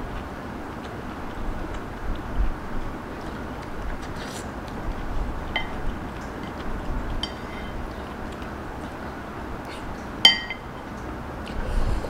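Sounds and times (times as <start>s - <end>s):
steady background hiss: 0.0s - 12.0s
metal chopsticks clinking on bowl: 5.5s - 5.8s, 7.2s - 7.8s, 10.2s - 10.7s.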